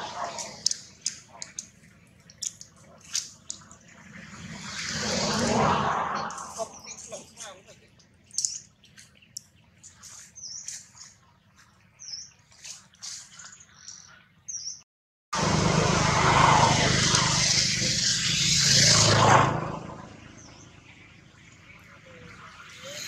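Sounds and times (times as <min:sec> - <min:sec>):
loud rushing noise: 0:00.0 - 0:00.7, 0:15.4 - 0:20.3
small birds chirping: 0:00.0 - 0:04.8, 0:06.2 - 0:14.8, 0:20.0 - 0:23.0.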